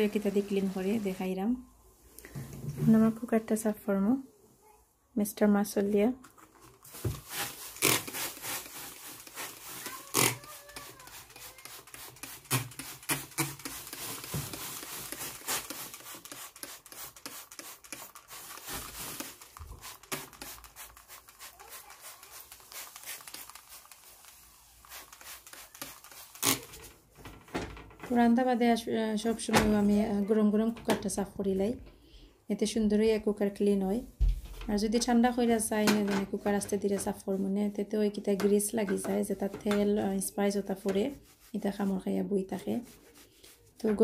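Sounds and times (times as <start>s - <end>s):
hand handling bottle: 6.2s - 27.1s
spray bottle hiss and click: 6.9s - 26.7s.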